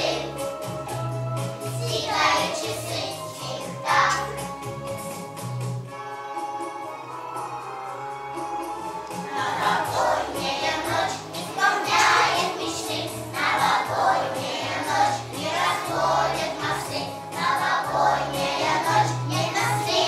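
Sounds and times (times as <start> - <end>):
children singing: 0.0 - 0.4, 1.8 - 4.4, 9.2 - 20.0
instrumental accompaniment with bass line: 0.0 - 20.0.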